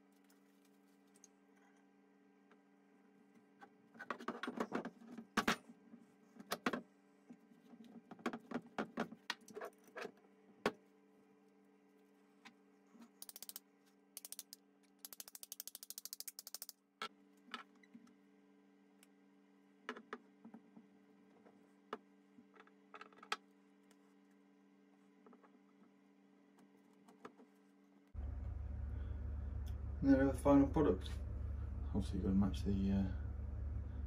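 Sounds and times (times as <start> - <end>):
faint steady hum: 0.0 - 34.0
metal parts clicking and knocking: 13.2 - 13.6, 14.2 - 16.8.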